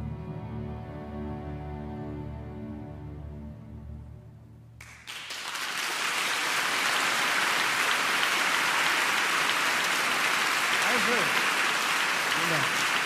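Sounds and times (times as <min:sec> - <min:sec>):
audience applause: 0:04.8 - 0:13.0.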